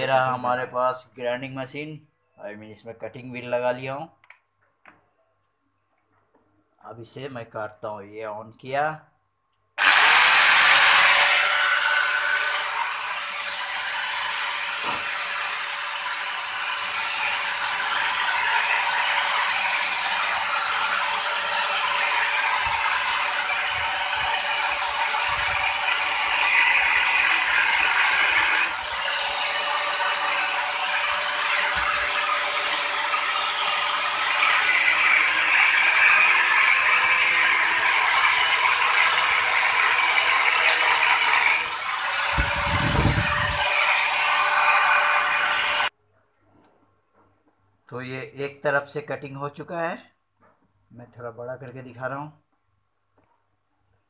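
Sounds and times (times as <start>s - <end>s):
angle grinder whine: 9.8s - 45.9s
grinder cutting into steel: 9.8s - 45.9s.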